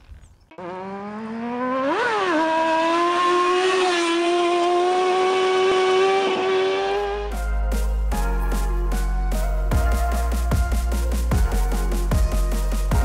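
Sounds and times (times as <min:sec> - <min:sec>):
motorcycle engine revving: 0:00.0 - 0:07.4.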